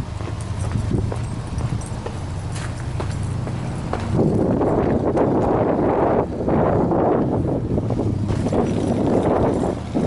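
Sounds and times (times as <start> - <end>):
footsteps on gravel: 0.0 - 5.6
car engine idling: 0.0 - 10.0.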